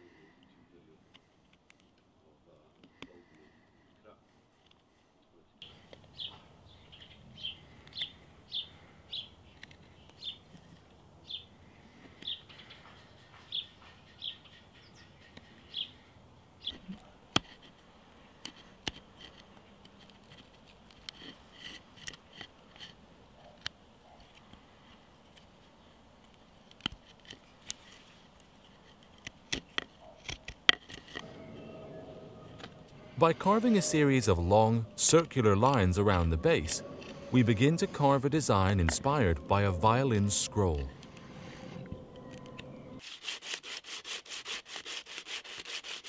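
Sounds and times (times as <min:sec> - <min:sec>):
bird chirping: 0:05.6 - 0:10.5, 0:11.2 - 0:11.5, 0:12.2 - 0:16.9, 0:31.2 - 0:43.0.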